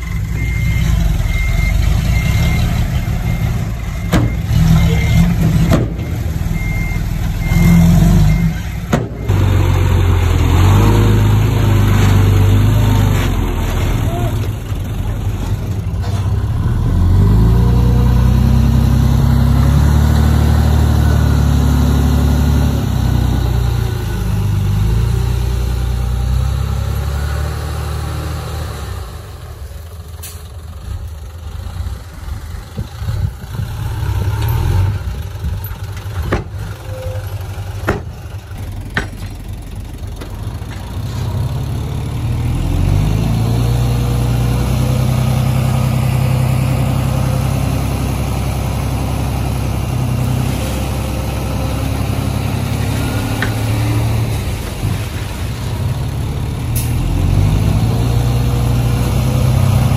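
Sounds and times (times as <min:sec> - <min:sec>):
diesel engine under load: 0:00.0 - 0:59.9
sharp metallic knocks: 0:37.8 - 0:38.2.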